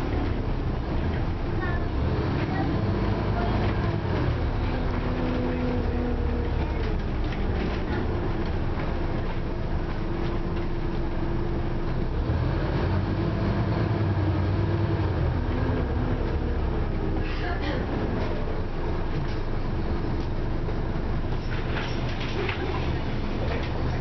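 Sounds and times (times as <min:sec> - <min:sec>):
bus engine drone: 0:00.0 - 0:24.0
road rumble: 0:00.0 - 0:24.0.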